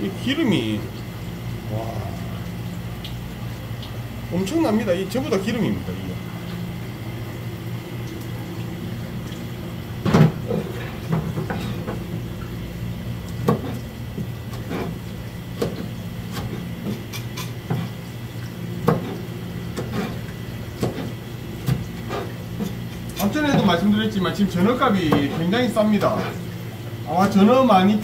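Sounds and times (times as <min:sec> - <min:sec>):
steady low hum: 0:00.0 - 0:28.0
knife chopping on plastic board: 0:20.8 - 0:22.2.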